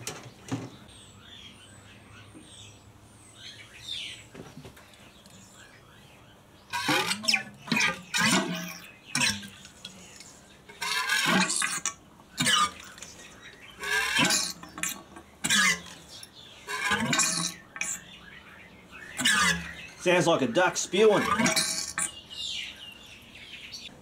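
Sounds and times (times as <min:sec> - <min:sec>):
squelching squawks from fork leg: 0:06.7 - 0:09.7, 0:10.8 - 0:13.0, 0:13.8 - 0:18.1, 0:19.1 - 0:20.0.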